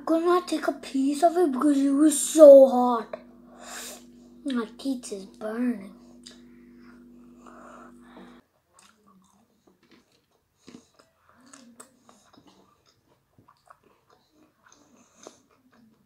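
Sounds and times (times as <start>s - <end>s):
steady hum: 0.0s - 8.4s
chewing crispy chicken: 8.7s - 16.0s.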